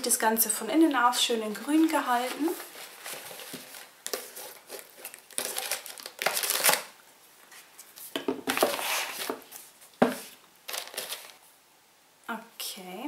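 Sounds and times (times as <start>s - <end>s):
packaging rustling and crinkling: 1.4s - 11.4s.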